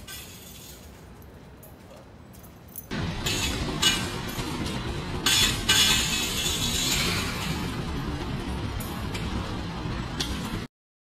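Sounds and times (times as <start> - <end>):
faint background noise: 0.0 - 10.7
bright jingling and clinking: 0.5 - 3.0.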